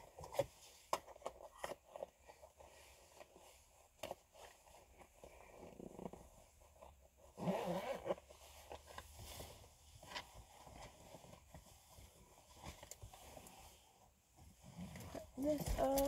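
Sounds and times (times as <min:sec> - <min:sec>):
rustling of small items: 0:08.0 - 0:16.0.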